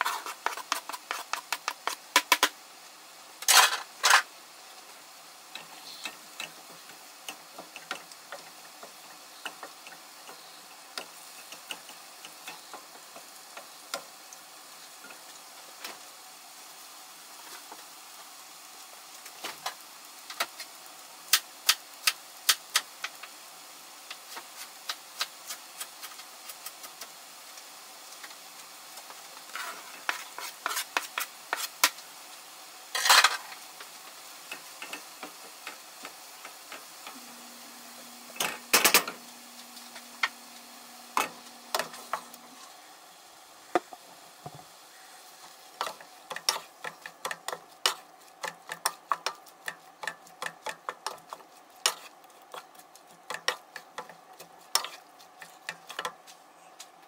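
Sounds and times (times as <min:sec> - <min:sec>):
food sizzling in frying pans: 0:00.0 - 0:57.0
utensils clattering: 0:03.4 - 0:04.3, 0:33.0 - 0:33.4, 0:38.3 - 0:39.2
spatula knocking against pans: 0:45.8 - 0:52.0.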